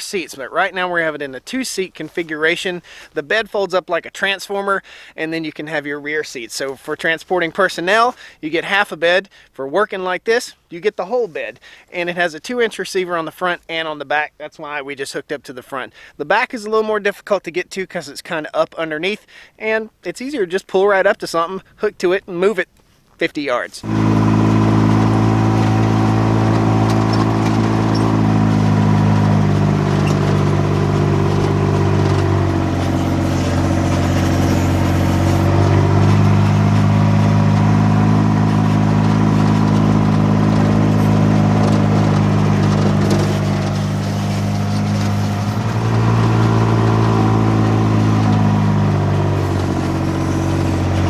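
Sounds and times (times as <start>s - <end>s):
diesel engine running: 23.8s - 51.0s.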